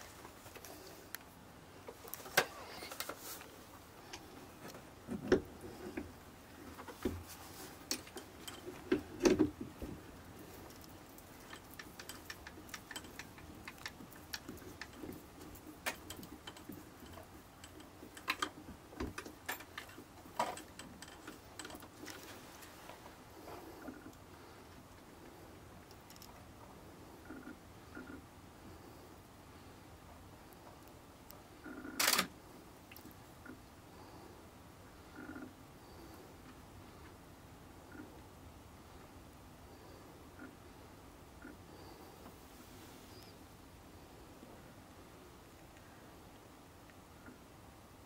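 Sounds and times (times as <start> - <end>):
badger foraging clicks and rustles: 0.0 - 26.5.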